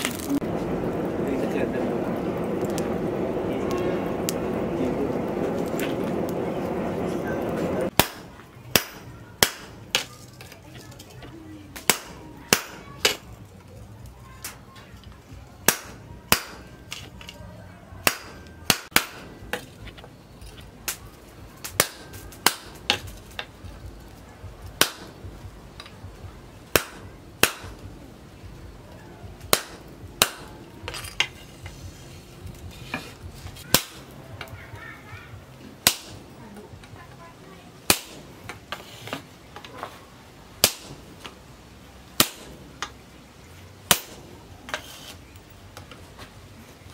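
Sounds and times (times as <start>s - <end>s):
hammer striking hot steel on anvil: 7.9s - 10.1s, 11.8s - 13.2s, 15.6s - 17.4s, 18.0s - 19.8s, 21.6s - 23.6s, 24.8s - 26.0s, 26.7s - 27.8s, 29.4s - 31.7s, 33.6s - 34.5s, 35.8s - 36.3s, 37.8s - 39.2s, 40.6s - 41.3s, 42.2s - 42.9s, 43.9s - 45.2s.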